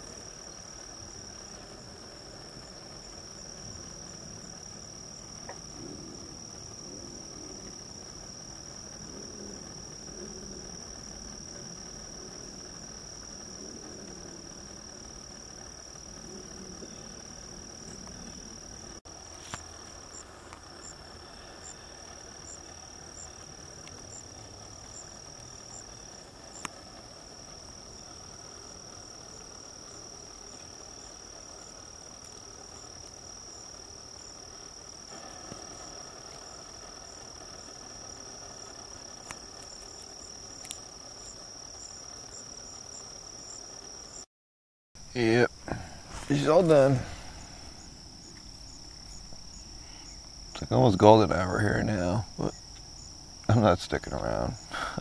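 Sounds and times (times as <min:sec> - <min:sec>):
crickets trilling: 0:00.0 - 0:44.3, 0:45.0 - 0:55.0
faint sharp clicks: 0:26.6 - 0:26.8, 0:40.6 - 0:40.9.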